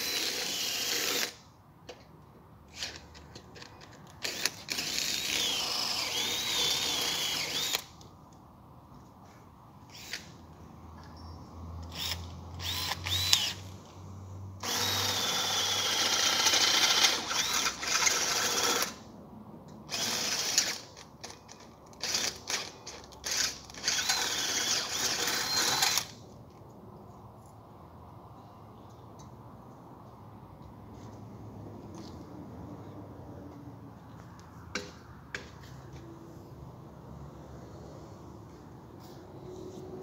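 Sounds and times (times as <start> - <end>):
power drill boring into metal: 0.0 - 1.4, 4.2 - 7.9, 11.9 - 13.6, 14.6 - 19.0, 23.3 - 26.1.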